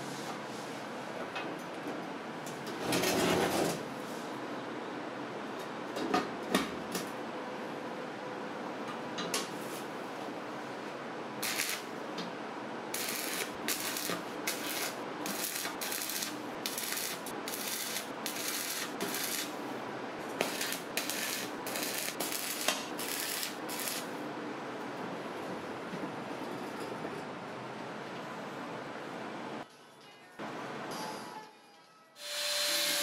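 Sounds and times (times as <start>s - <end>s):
arc welding crackle bursts: 11.4s - 11.9s, 12.9s - 19.6s, 20.4s - 24.2s, 32.2s - 33.0s.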